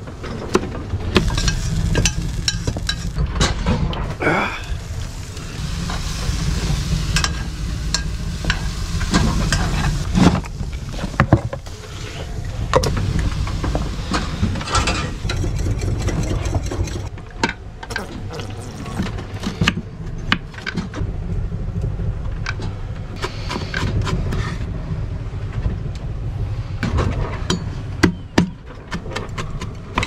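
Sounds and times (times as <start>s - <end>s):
steady low rumble: 0.8s - 17.2s.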